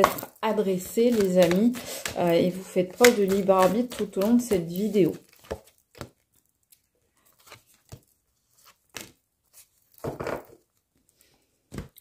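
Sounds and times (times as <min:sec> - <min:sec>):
cards being shuffled: 0:00.0 - 0:06.3.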